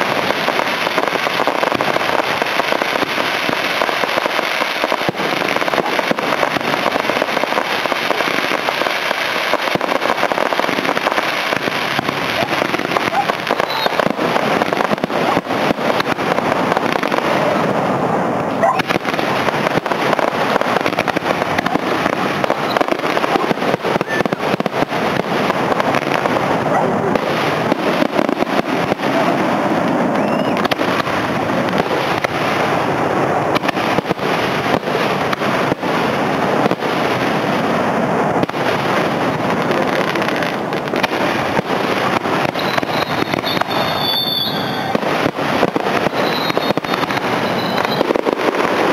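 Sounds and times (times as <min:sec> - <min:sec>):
fireworks bursting and crackling: 0:00.0 - 0:48.9.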